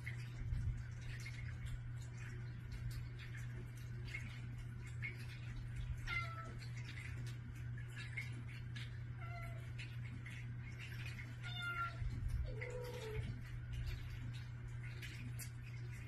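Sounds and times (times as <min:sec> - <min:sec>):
cats meowing: 0:06.0 - 0:06.6, 0:09.2 - 0:09.8, 0:11.3 - 0:13.4.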